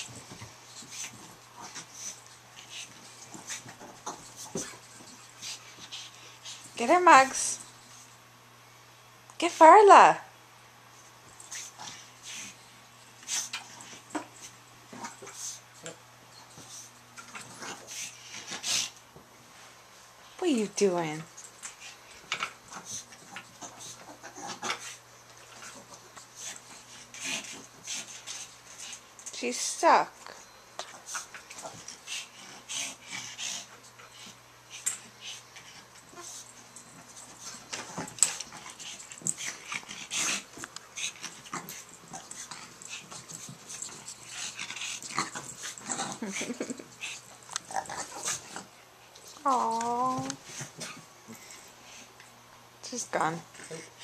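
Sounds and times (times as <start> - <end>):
animals scuffling on a rug: 0.0 - 8.2, 10.9 - 52.2
puppy noises: 21.6 - 29.0, 30.8 - 52.1.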